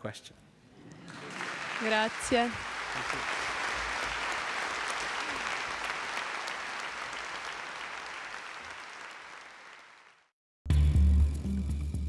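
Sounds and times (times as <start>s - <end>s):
audience applauding: 0.9s - 10.3s.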